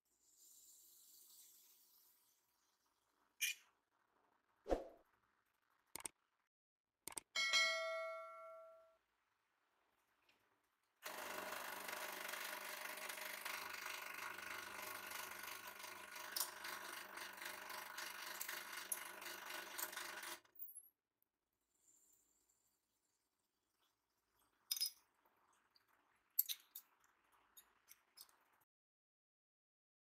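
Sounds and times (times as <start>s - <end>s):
metal pipe ringing: 7.4s - 8.9s.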